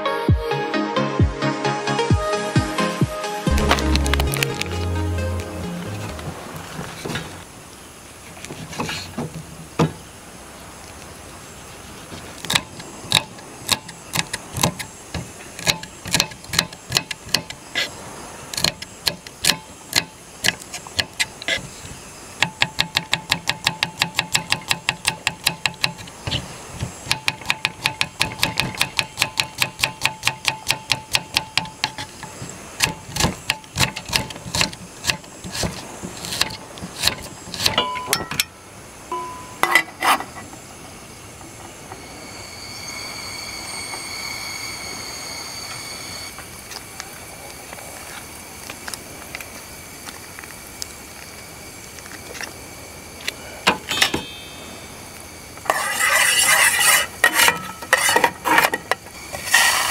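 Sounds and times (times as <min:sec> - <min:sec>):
short ringing clinks: 0:37.8 - 0:39.9, 0:53.9 - 0:54.8.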